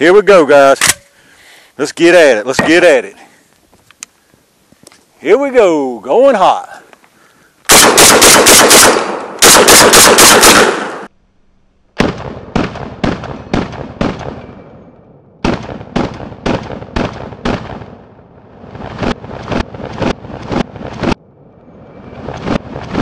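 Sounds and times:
shotgun shots: 7.7 - 11.1, 12.0 - 14.5, 15.4 - 18.0.

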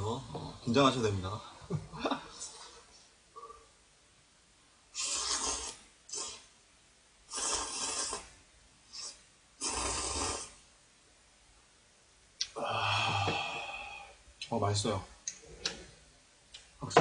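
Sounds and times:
man slurping noodles: 5.0 - 6.5, 7.3 - 8.3, 8.9 - 10.6
quick suck: 5.0 - 6.5.

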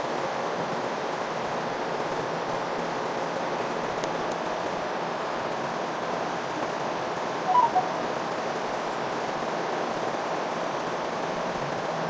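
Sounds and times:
short pitched blips: 7.5 - 8.0.

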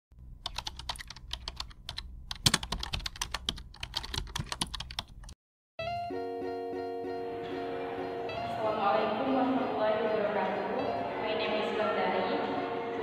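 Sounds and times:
keyboard typing clicks: 0.4 - 5.4
plucked-string background music: 5.8 - 13.0.

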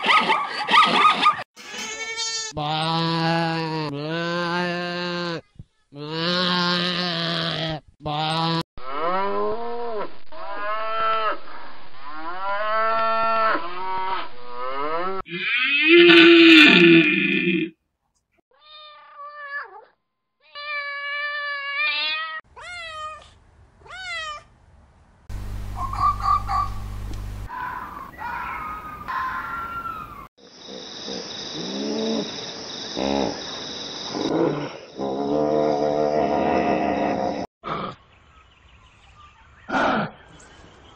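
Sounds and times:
steady high hiss: 25.3 - 27.5.

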